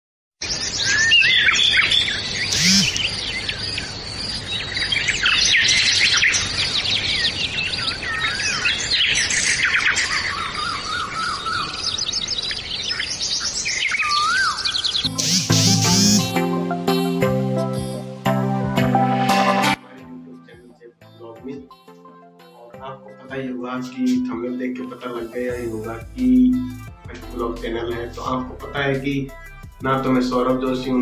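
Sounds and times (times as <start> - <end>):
birds chirping chorus: 0.4 - 15.1
bird repeating quick notes: 2.5 - 3.1, 15.1 - 16.4.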